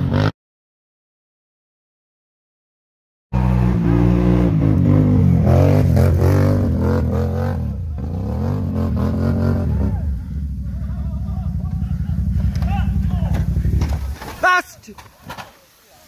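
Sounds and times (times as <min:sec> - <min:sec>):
quad bike engine revving: 0:00.0 - 0:00.3, 0:03.4 - 0:14.1.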